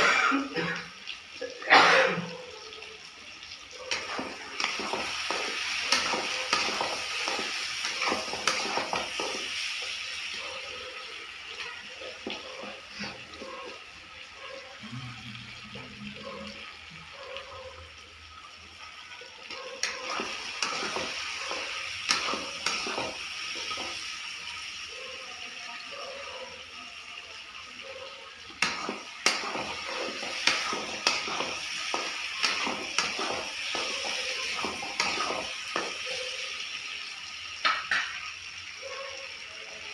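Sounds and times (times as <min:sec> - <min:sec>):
curry sizzling in a pan: 0:00.0 - 0:39.9
spatula scraping and knocking pan: 0:03.9 - 0:09.7, 0:28.6 - 0:36.1.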